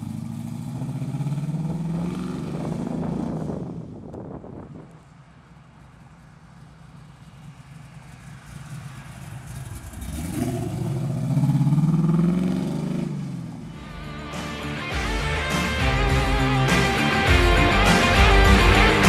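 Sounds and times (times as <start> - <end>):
car engine driving past: 5.1 - 14.8.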